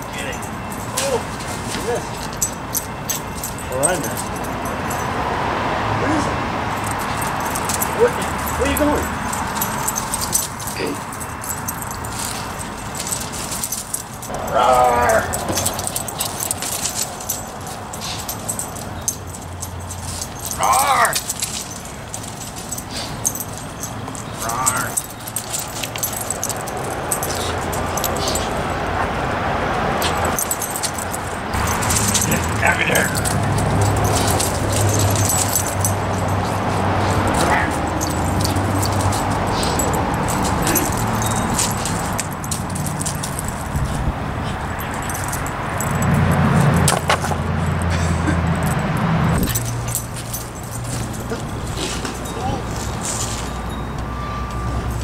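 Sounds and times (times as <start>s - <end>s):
light metallic jingling: 0.0s - 55.0s
vehicle engine humming: 0.0s - 55.0s
dog making noises: 36.3s - 38.6s.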